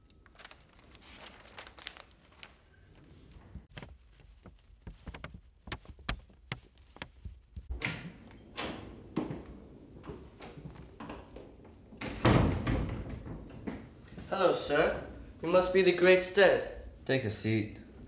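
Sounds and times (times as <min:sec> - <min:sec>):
newspaper pages rustling: 0:00.0 - 0:07.7
light clicks and knocks: 0:03.7 - 0:08.0
wooden double door opening: 0:07.7 - 0:14.1.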